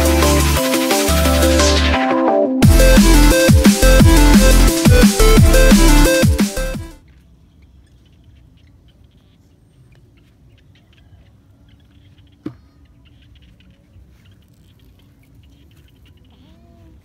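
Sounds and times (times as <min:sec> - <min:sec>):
electronic intro music: 0:00.0 - 0:07.0
faint rustles and ticks: 0:07.0 - 0:17.0.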